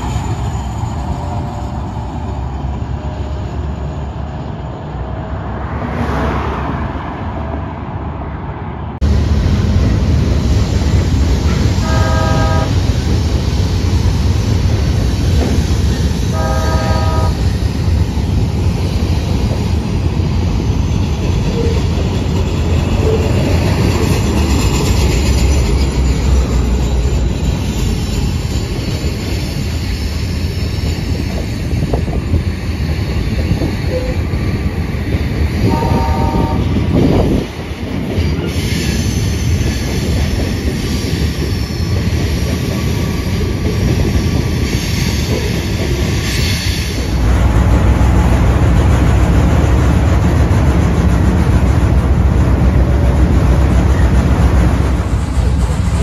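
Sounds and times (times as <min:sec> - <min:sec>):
streetcar rumbling along rails: 0:00.0 - 0:56.0
streetcar horn blast: 0:11.8 - 0:12.8, 0:16.3 - 0:17.4, 0:35.6 - 0:36.7.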